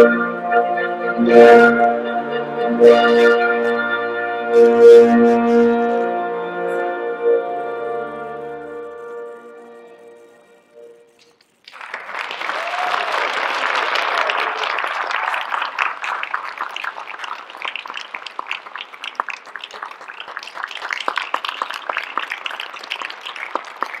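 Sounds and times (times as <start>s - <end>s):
audience applause: 11.6s - 24.0s.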